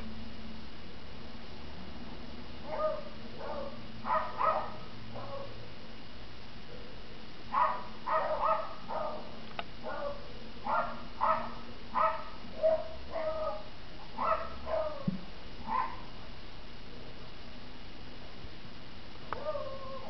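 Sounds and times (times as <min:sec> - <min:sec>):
dog barking: 0:02.6 - 0:05.6, 0:07.5 - 0:16.1, 0:19.4 - 0:20.0.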